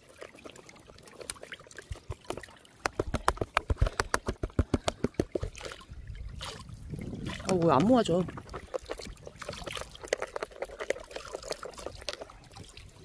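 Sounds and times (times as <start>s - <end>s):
water and sand sloshing in pan: 0.0s - 13.0s
sharp slaps and knocks: 2.1s - 5.5s.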